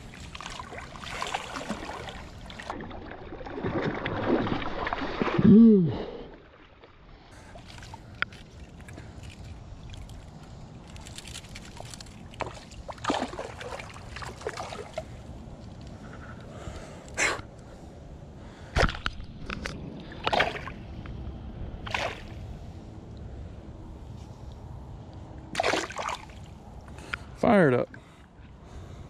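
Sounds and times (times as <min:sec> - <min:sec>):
fish splashing in water: 0:00.1 - 0:05.4, 0:11.2 - 0:15.0, 0:21.8 - 0:22.4, 0:25.5 - 0:26.4.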